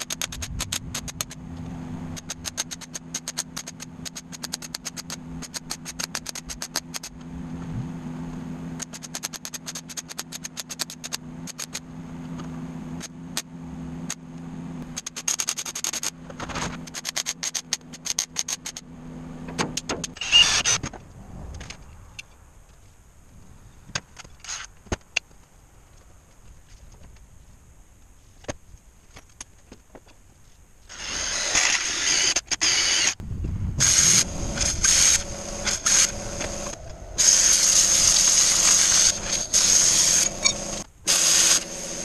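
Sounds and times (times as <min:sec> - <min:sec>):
welding clicks and crackles: 0:00.0 - 0:01.4, 0:02.1 - 0:07.2, 0:08.8 - 0:11.8, 0:14.8 - 0:18.8
welding hum: 0:30.9 - 0:42.0.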